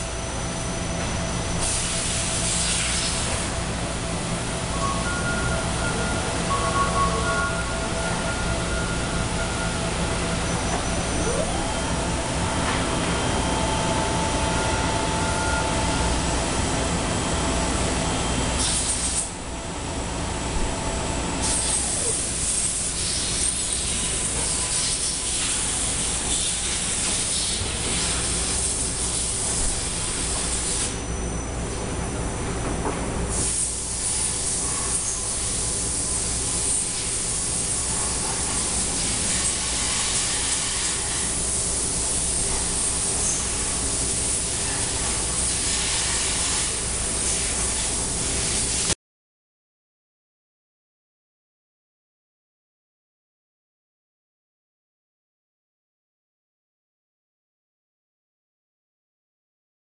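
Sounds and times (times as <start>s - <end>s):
machinery low hum: 0.0s - 48.9s
machinery hiss: 0.6s - 19.4s, 21.4s - 31.0s, 33.3s - 49.0s.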